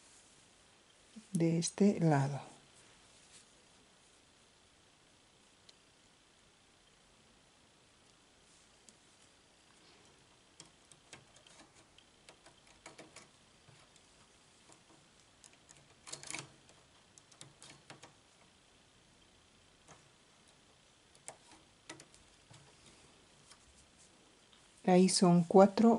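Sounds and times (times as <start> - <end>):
metal clicks of knitting machine: 10.5 - 18.5, 21.1 - 22.7.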